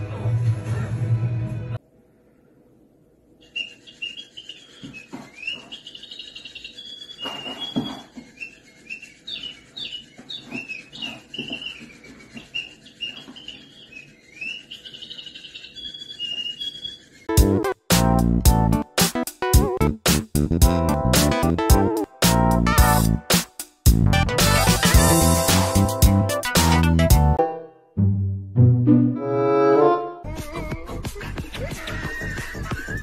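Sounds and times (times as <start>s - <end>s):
small bird chirping: 3.4s - 17.3s.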